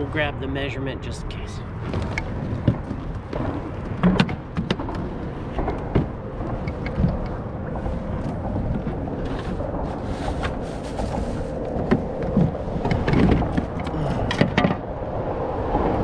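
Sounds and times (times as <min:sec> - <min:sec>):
steady low rumble: 0:00.0 - 0:16.0
gear and clothing rustling: 0:07.0 - 0:12.8.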